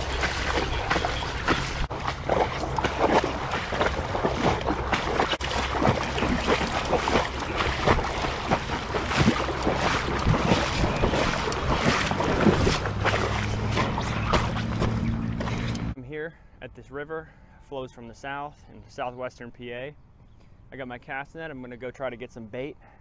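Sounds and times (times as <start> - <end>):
wind buffeting microphone: 0.0 - 15.9
moving water: 0.0 - 16.0.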